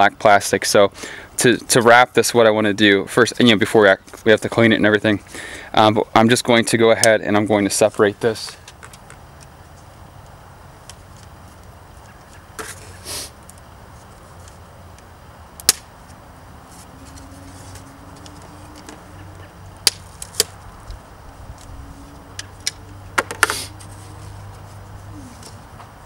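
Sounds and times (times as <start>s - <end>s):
handling rustle: 16.0s - 19.1s.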